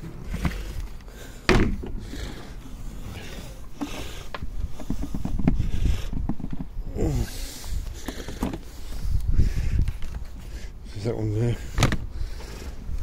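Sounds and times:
wind rumble on microphone: 0:04.0 - 0:08.0, 0:08.6 - 0:10.6.

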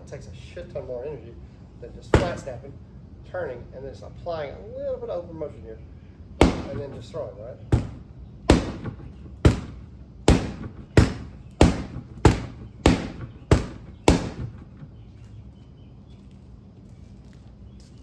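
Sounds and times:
practice sword striking a target: 0:06.4 - 0:07.0, 0:07.7 - 0:14.6.

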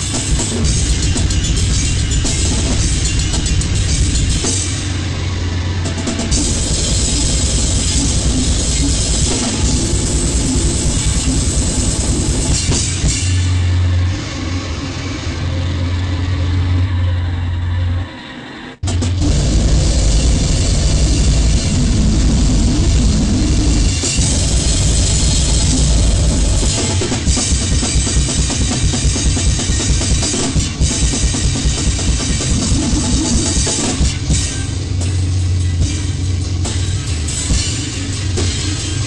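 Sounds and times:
drum kit with cymbals: 0:00.0 - 0:14.3, 0:18.8 - 0:39.0
wall of distorted noise: 0:00.0 - 0:39.0.

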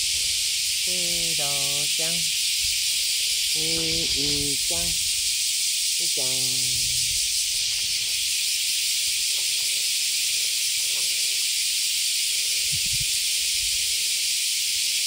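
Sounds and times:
loud high hiss: 0:00.0 - 0:09.1.

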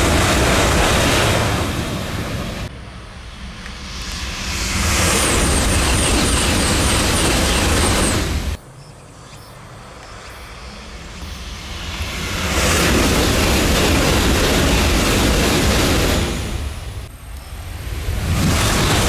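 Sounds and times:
high-speed train roaring past: 0:00.0 - 0:19.0.

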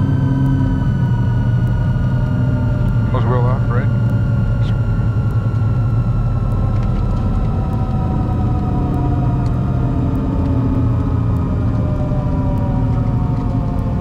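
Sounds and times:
propeller engines droning: 0:00.0 - 0:14.0.

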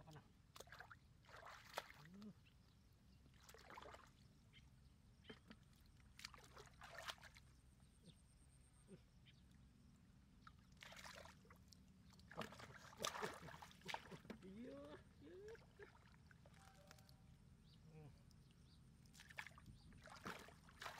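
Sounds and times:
hands splashing in muddy water: 0:00.5 - 0:02.3, 0:05.4 - 0:07.5, 0:10.8 - 0:14.6, 0:19.1 - 0:20.9.

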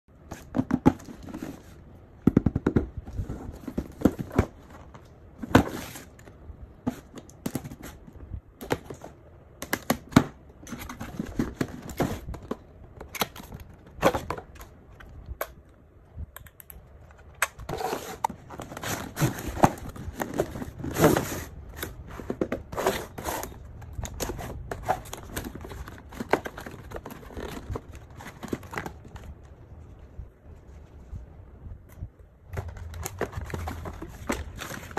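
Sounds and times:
packaging rustling and crinkling: 0:17.2 - 0:29.5, 0:32.5 - 0:34.9.

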